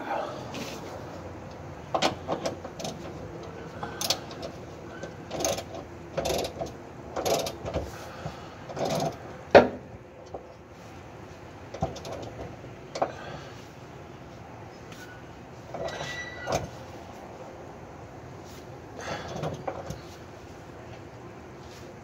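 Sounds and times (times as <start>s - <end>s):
ratchet wrench clicking: 5.0s - 7.6s.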